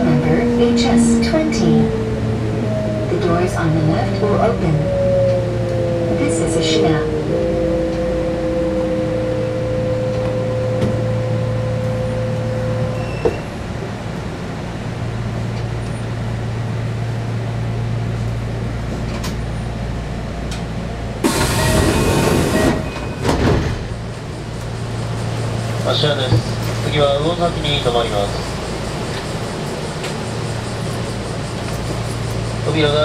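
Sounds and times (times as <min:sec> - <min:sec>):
low hum of standing train: 0:00.0 - 0:33.0
train motor whine: 0:00.2 - 0:13.8, 0:20.5 - 0:33.0
click: 0:20.5 - 0:20.7.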